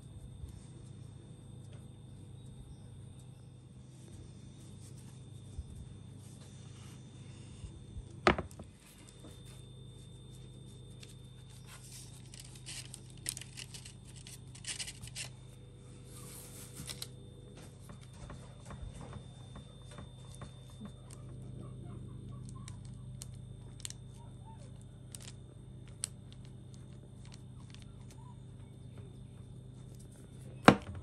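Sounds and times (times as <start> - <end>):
steady low hum: 0.0 - 31.0
parchment paper crinkling: 8.8 - 17.2.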